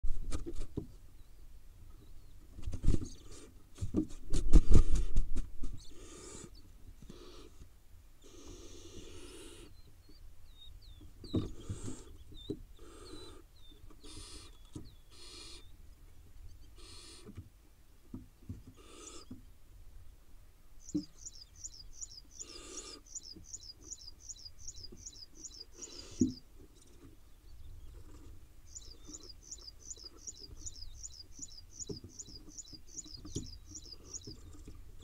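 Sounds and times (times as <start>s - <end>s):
owlets rasping begging calls: 12.8s - 15.7s, 16.8s - 17.3s, 18.7s - 19.4s, 20.8s - 26.4s.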